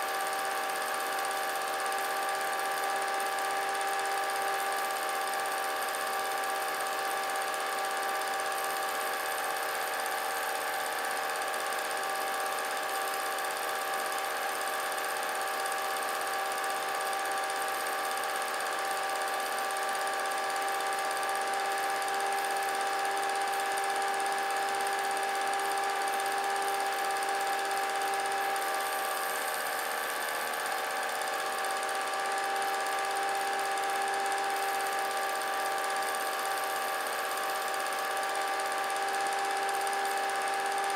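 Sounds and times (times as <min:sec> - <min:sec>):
small motor whining: 0:00.0 - 0:40.9.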